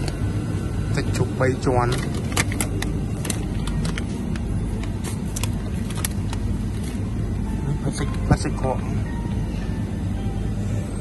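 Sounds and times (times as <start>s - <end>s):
low background hum: 0.0s - 11.0s
plastic packaging crinkling: 1.9s - 7.2s.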